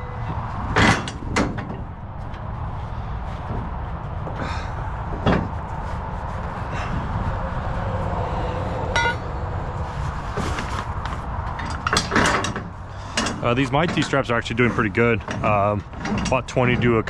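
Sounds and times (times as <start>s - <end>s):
low rumble: 0.0s - 11.9s.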